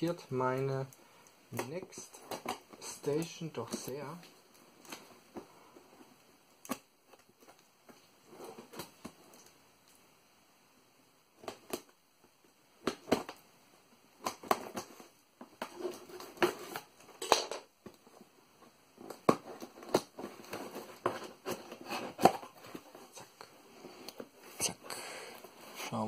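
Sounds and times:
cardboard flaps rustling and creaking: 0:14.3 - 0:17.0, 0:17.9 - 0:23.4.

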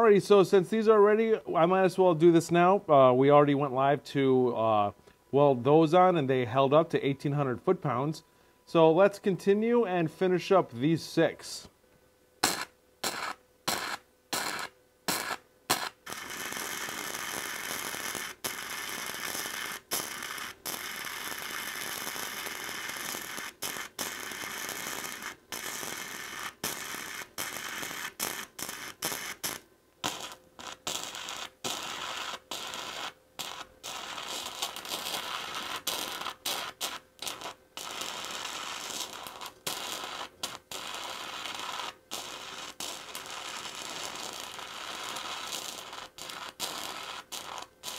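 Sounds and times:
welder arc crackling and hissing: 0:00.0 - 0:02.8, 0:12.4 - 0:47.9.

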